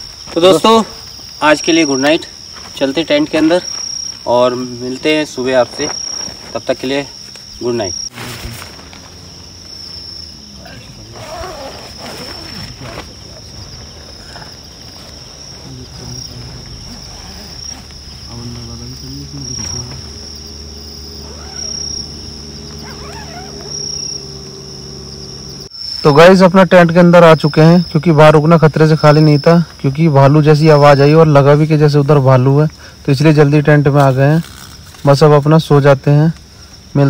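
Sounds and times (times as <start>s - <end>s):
crickets trilling: 0.0s - 37.0s
faint voices: 15.5s - 20.2s.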